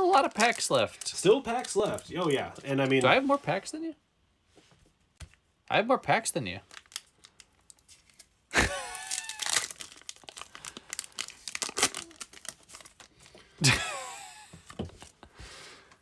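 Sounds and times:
foil wrapper tearing and crinkling: 0.0s - 3.0s, 6.7s - 13.3s.

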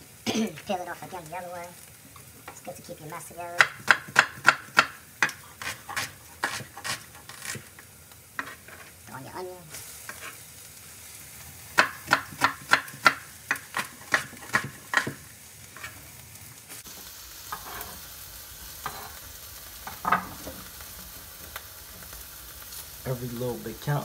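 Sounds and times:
food sizzling in a pan: 0.0s - 24.0s
knife chopping on wooden board: 3.6s - 7.6s, 11.8s - 15.2s.

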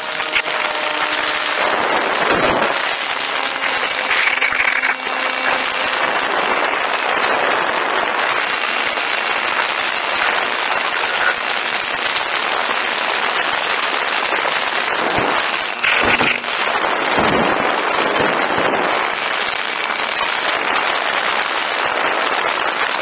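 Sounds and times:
wind hiss on microphone: 0.0s - 23.0s.

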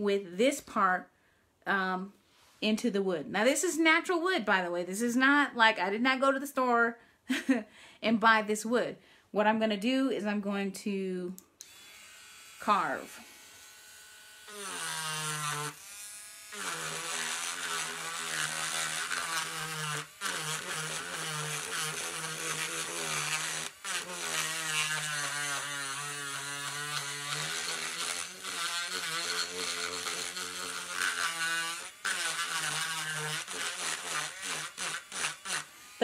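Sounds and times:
rotary tool carving wood: 11.6s - 36.0s.

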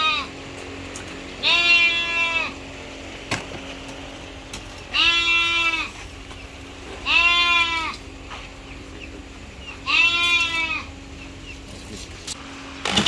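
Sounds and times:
farm animal calling: 0.0s - 0.4s, 1.3s - 2.8s, 4.7s - 12.3s.

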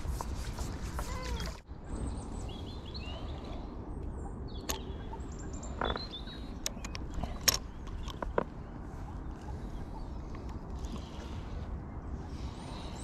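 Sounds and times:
songbirds chirping: 1.7s - 13.0s.

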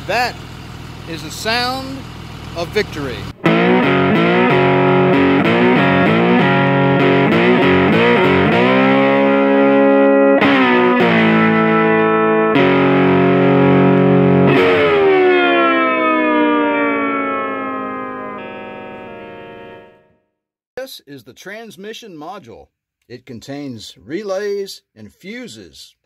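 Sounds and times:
distorted electric guitar riff: 3.4s - 20.2s.

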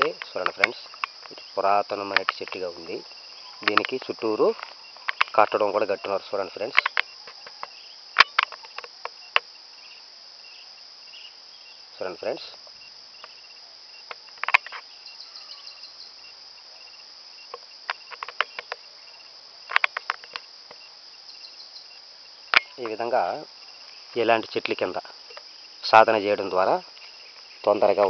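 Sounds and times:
crickets droning: 0.0s - 28.0s
sharp clicks and crackles: 3.6s - 5.6s, 6.7s - 9.5s, 14.1s - 14.8s, 17.5s - 18.8s, 19.7s - 20.8s.

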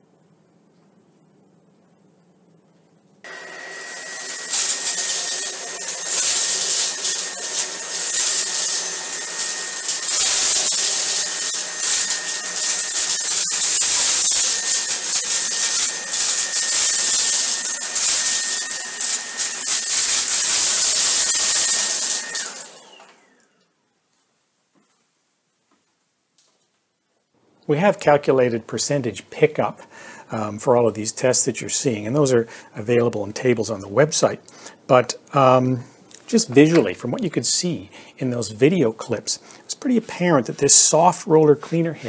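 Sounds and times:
vacuum cleaner whine and hiss: 3.2s - 23.7s, 29.4s - 42.0s.

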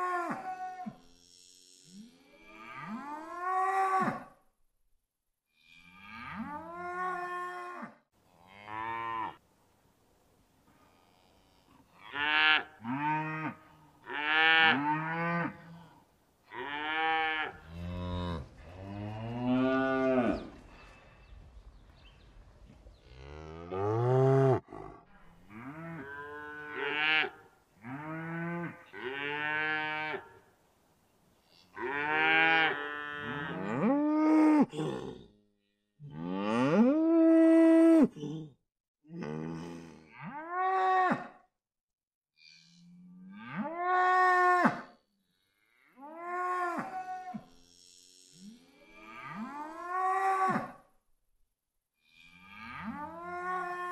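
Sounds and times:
cattle mooing: 23.1s - 30.2s, 52.1s - 53.9s.

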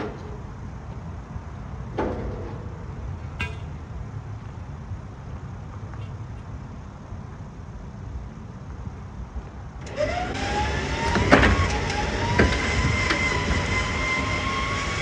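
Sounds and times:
heavy clunk: 0.0s - 0.6s, 1.9s - 3.8s
ringing metallic clank: 3.4s - 3.8s.

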